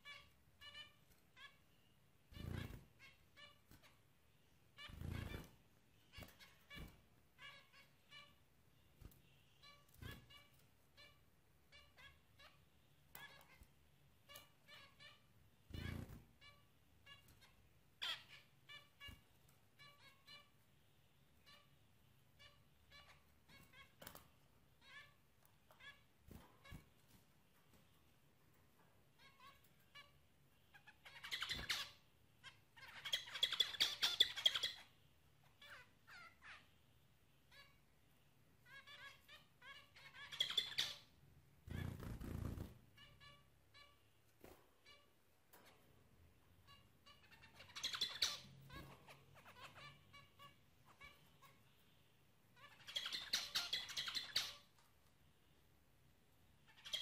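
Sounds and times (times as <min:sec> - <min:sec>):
rapid chattering birdsong: 0:29.2 - 0:36.7, 0:38.6 - 0:44.0, 0:46.6 - 0:54.8, 0:56.6 - 0:57.0
finches calling: 0:38.7 - 0:41.1.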